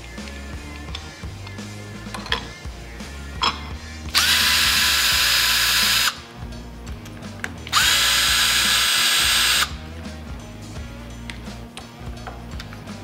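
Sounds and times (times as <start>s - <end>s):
cordless drill whining: 4.1s - 6.2s, 7.7s - 9.8s.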